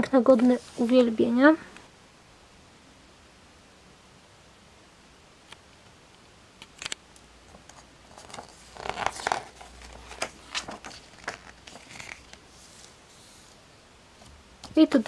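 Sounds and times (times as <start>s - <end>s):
magazine page rustling: 7.5s - 13.6s.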